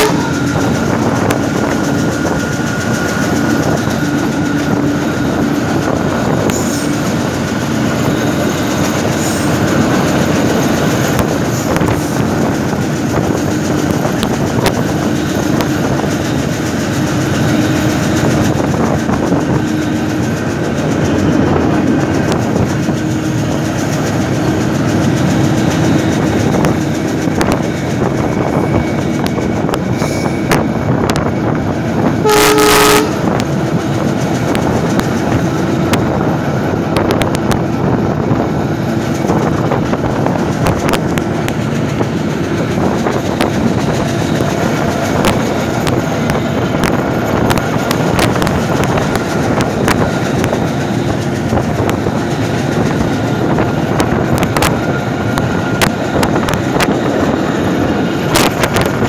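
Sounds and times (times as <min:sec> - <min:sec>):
train horn: 0:00.0 - 0:00.8, 0:32.2 - 0:33.5
train wheels rumbling on track: 0:00.0 - 0:59.0.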